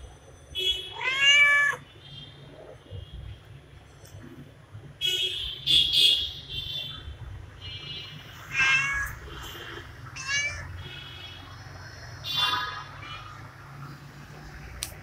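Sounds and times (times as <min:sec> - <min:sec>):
cat meowing: 0:00.9 - 0:01.8, 0:08.4 - 0:09.3, 0:10.2 - 0:10.8.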